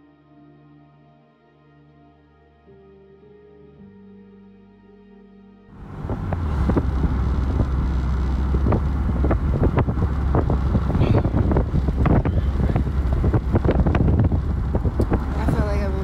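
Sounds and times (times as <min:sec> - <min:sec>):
road and engine rumble: 0:05.7 - 0:16.0
wind noise on microphone: 0:05.8 - 0:16.0.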